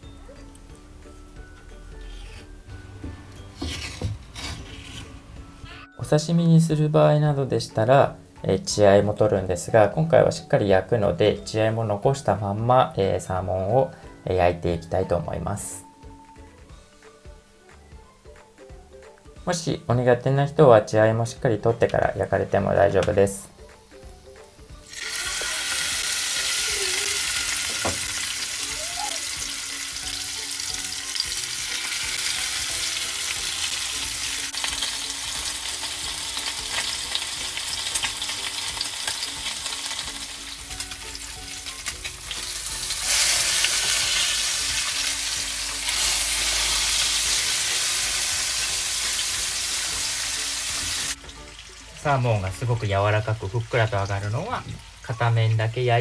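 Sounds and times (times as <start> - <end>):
fish sizzling in hot oil: 23.4 - 55.8.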